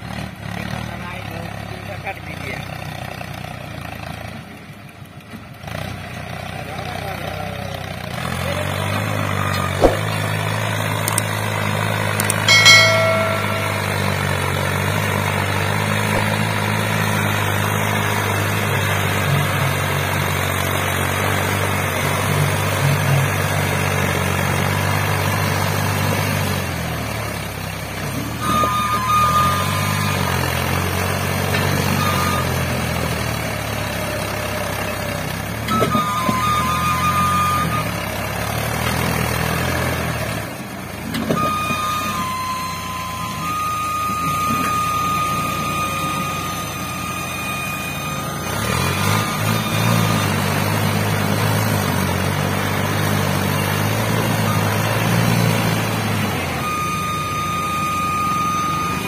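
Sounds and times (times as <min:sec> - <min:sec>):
tractor diesel engine lugging: 0:00.0 - 0:59.0
high steady beeping: 0:12.2 - 0:14.4.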